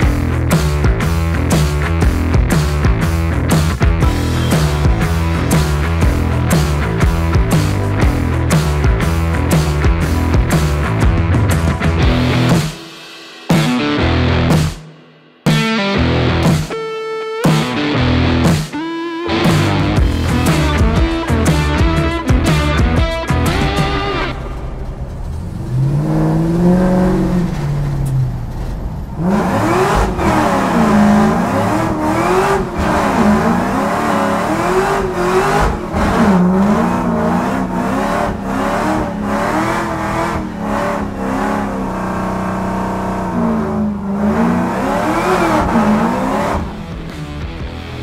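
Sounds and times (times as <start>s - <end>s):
vehicle engine revving: 19.4s - 48.0s.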